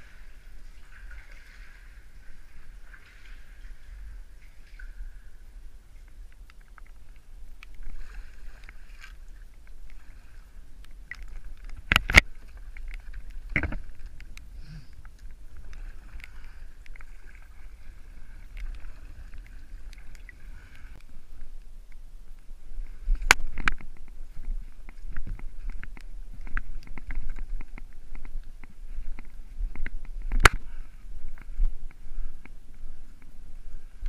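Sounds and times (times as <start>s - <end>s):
kayak paddle swishing through water: 0.0s - 6.3s, 7.0s - 21.5s.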